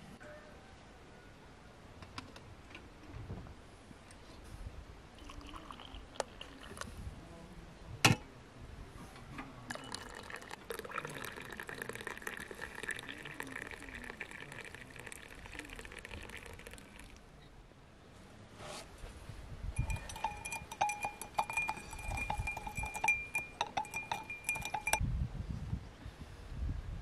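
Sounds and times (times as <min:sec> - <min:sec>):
water pouring into glass: 0:05.2 - 0:06.9, 0:09.7 - 0:17.2, 0:19.8 - 0:25.0.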